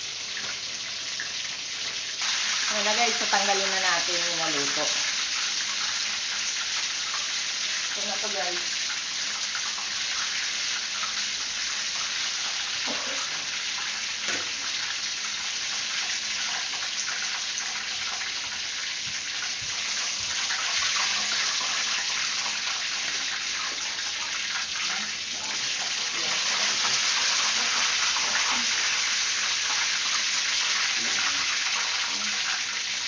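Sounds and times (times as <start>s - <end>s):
chicken sizzling in hot oil: 0.0s - 33.0s.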